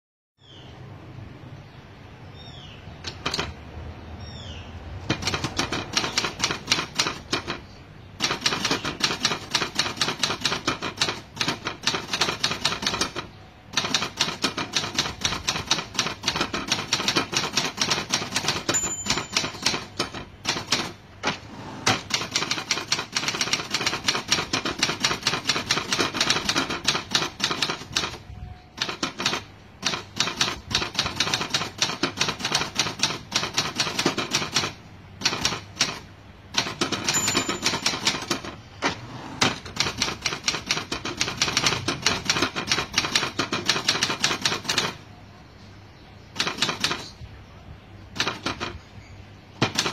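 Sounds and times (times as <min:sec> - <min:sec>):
typewriter keys striking: 0:03.0 - 0:03.6, 0:05.0 - 0:45.0, 0:46.4 - 0:47.2, 0:48.2 - 0:48.8, 0:49.6 - 0:49.9
typewriter bell ring: 0:17.8 - 0:20.7, 0:36.6 - 0:38.6.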